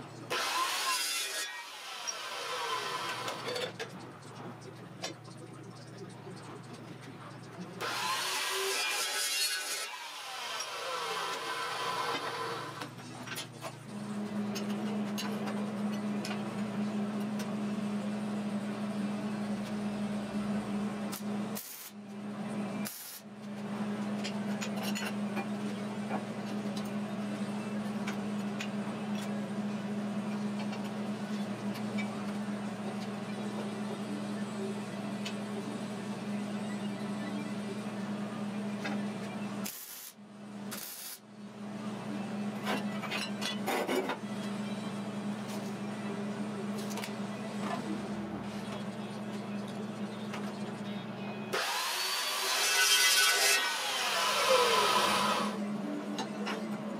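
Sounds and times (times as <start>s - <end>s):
welder arc crackling and hissing: 21.1s - 22.0s, 22.8s - 23.2s, 39.6s - 41.2s.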